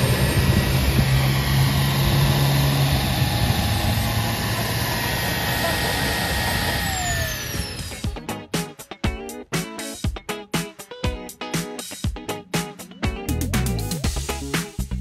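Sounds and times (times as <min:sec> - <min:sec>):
model turboprop engine idling: 0:00.0 - 0:08.2.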